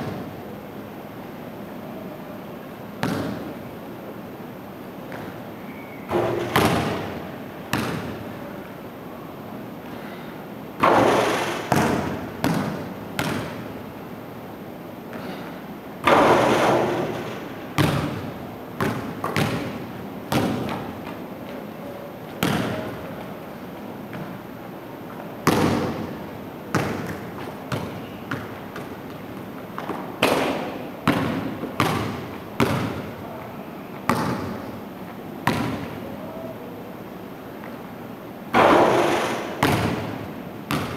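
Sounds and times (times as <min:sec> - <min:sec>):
basketball bouncing on wooden floor: 0:03.0 - 0:03.4, 0:06.1 - 0:08.2, 0:10.8 - 0:13.6, 0:16.1 - 0:21.6, 0:22.4 - 0:22.9, 0:25.4 - 0:26.1, 0:26.7 - 0:33.1, 0:34.1 - 0:34.6, 0:35.4 - 0:36.0, 0:38.6 - 0:40.9
ball striking the hoop: 0:03.0 - 0:03.5, 0:06.1 - 0:08.2, 0:10.8 - 0:13.6, 0:16.0 - 0:20.9, 0:22.4 - 0:23.0, 0:25.4 - 0:26.1, 0:26.7 - 0:28.9, 0:29.8 - 0:33.1, 0:34.1 - 0:34.6, 0:35.4 - 0:36.0, 0:38.5 - 0:40.9.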